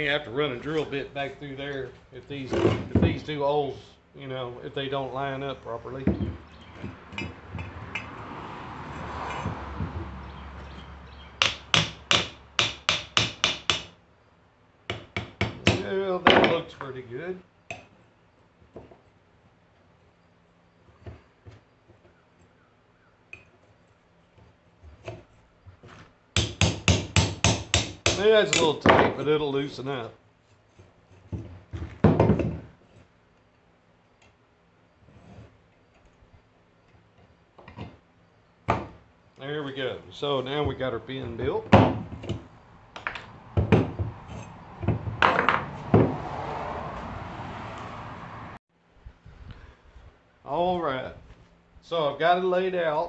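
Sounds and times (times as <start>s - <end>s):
steel parts knocking on workbench: 44.8s - 46.2s.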